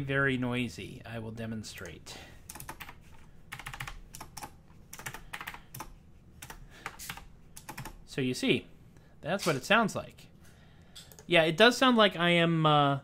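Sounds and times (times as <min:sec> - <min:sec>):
mechanical keyboard clacking: 0:03.5 - 0:08.0.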